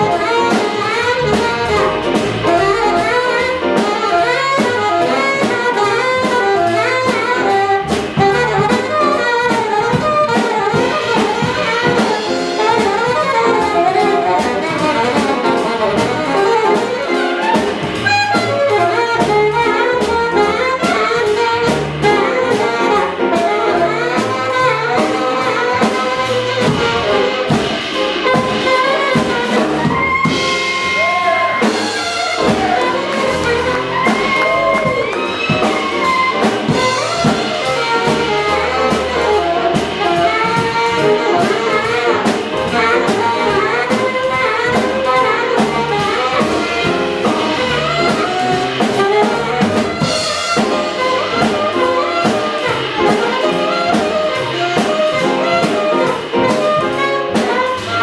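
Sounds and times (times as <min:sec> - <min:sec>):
alto saxophone solo: 0:00.0 - 0:58.0
drum kit with cymbals: 0:00.0 - 0:58.0
piano: 0:00.0 - 0:58.0
upright bass: 0:00.0 - 0:58.0.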